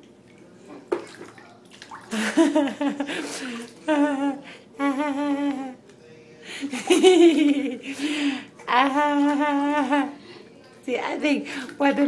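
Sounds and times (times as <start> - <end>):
person humming: 3.9 - 5.8.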